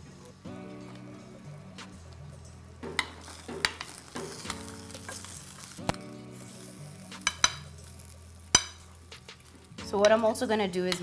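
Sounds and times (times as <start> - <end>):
cooking juices sizzling: 0.1 - 11.0.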